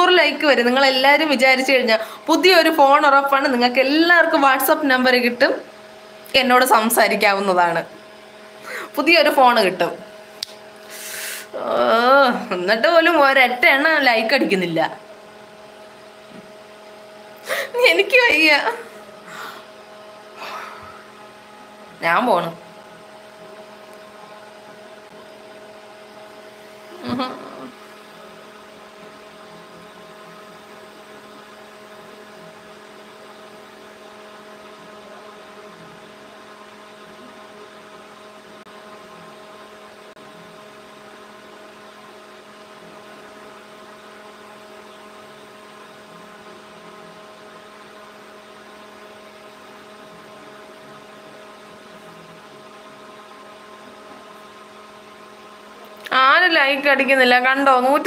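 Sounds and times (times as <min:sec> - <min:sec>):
steady multi-tone hum: 0:00.0 - 0:58.0.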